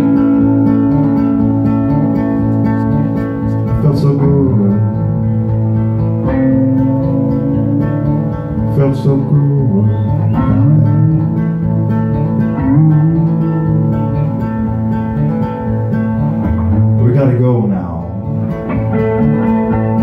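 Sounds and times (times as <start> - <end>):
acoustic guitar strumming: 0.0 - 20.0
held electric guitar notes: 0.0 - 20.0.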